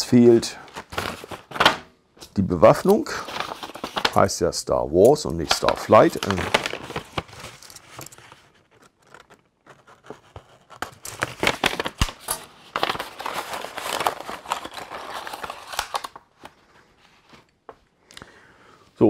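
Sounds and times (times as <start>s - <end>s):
paper bag crinkling: 0.6s - 1.8s, 2.9s - 4.3s, 5.4s - 16.6s.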